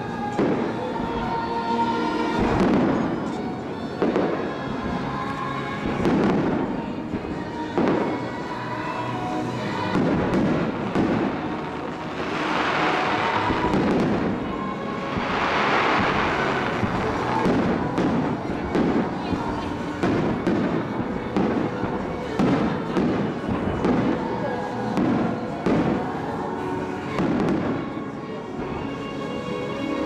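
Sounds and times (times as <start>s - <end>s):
fireworks crackling: 0.0s - 29.0s
faint music over loudspeakers: 0.0s - 30.0s
fireworks booming: 2.4s - 3.4s, 5.8s - 8.3s, 9.8s - 26.2s, 27.1s - 28.0s.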